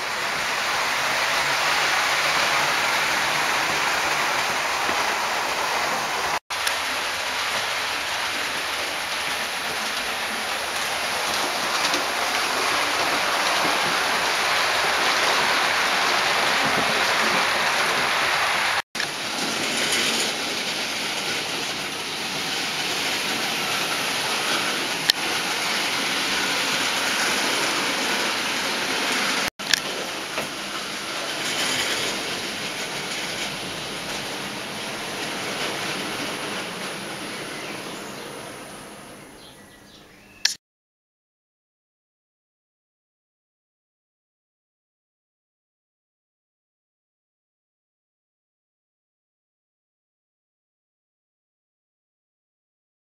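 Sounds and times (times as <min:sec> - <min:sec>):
model trains whirring and rattling: 0:00.0 - 0:39.5.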